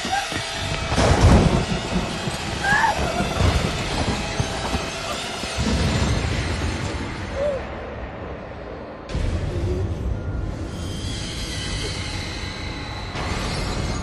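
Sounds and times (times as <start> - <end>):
rumbling noise: 0.0 - 14.0
loud hit: 0.8 - 8.4
wailing cries: 2.6 - 3.8.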